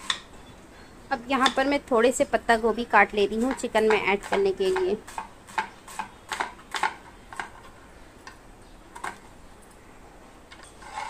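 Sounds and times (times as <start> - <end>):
knife chopping cabbage: 3.3 - 7.6.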